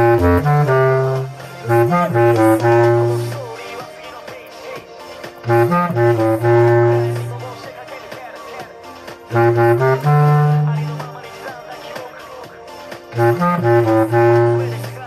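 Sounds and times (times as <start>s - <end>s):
bass clarinet playing: 0.0s - 3.6s, 5.4s - 7.7s, 9.3s - 11.4s, 13.2s - 15.0s
quiet backing track: 0.0s - 15.0s.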